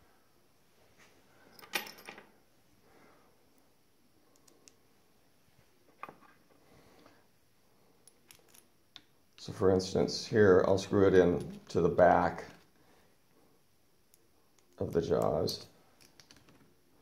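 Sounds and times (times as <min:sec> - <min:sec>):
metal clinks and knocks: 0:01.5 - 0:02.3.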